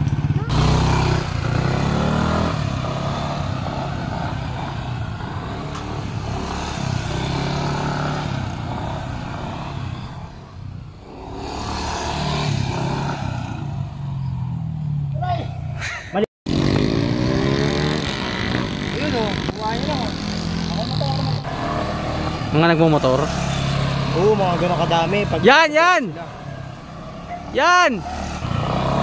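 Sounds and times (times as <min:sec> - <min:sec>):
scooter engine revving: 0:00.0 - 0:15.0, 0:16.5 - 0:25.6, 0:26.3 - 0:29.0.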